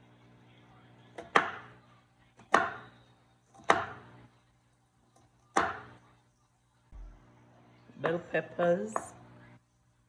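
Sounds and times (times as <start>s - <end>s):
knife striking cutting board: 1.2s - 1.7s, 3.6s - 4.0s.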